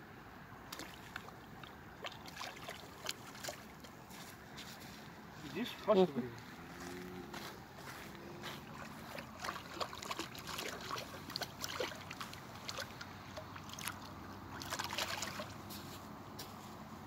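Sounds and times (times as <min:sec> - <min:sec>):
fish splashing in shallow water: 0:00.6 - 0:04.8, 0:07.3 - 0:16.1.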